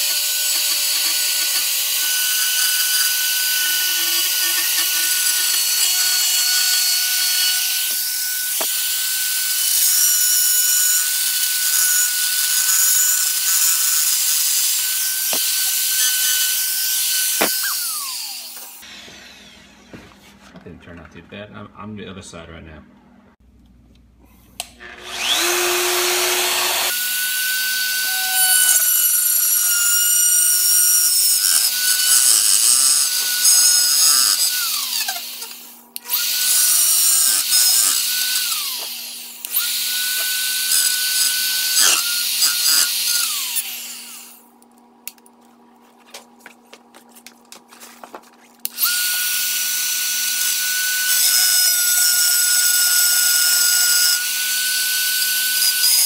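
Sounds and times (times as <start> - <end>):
spiral saw cutting plastic: 0.0 - 19.6, 24.9 - 44.4, 48.6 - 56.0
saw winding down: 0.0 - 19.9, 24.8 - 44.4.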